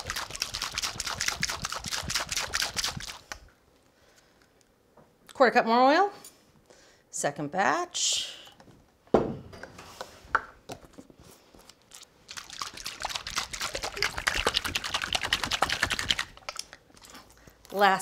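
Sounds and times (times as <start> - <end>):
shaker sloshing rattle: 0.0 - 3.3, 11.9 - 16.7.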